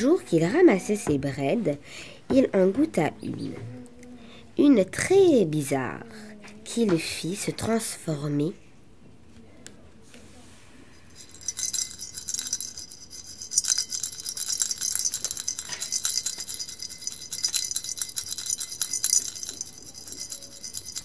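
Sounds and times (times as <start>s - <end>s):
rattle jingling: 11.1s - 21.0s.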